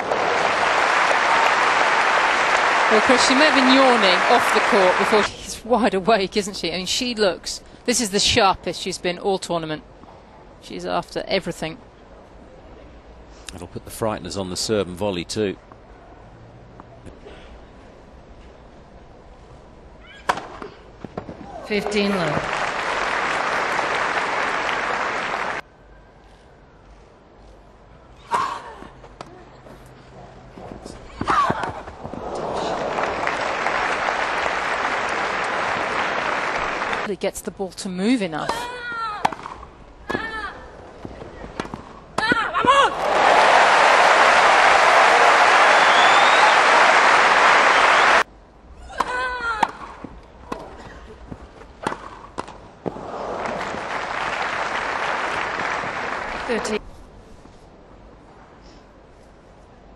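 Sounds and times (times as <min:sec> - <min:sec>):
crowd applause: 0:00.0 - 0:05.3, 0:22.0 - 0:25.6, 0:32.2 - 0:37.1, 0:42.9 - 0:48.2, 0:53.2 - 0:56.8.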